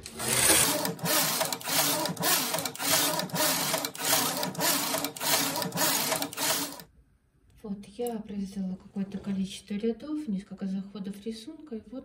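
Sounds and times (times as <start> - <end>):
knitting machine carriage whirring: 0.0 - 6.9.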